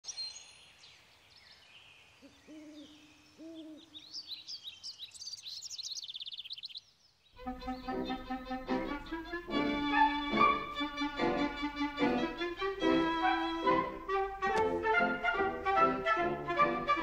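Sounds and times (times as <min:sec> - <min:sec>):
songbirds chirping and trilling: 0:00.0 - 0:14.2
owl hooting: 0:02.2 - 0:04.0
string music: 0:07.4 - 0:17.0.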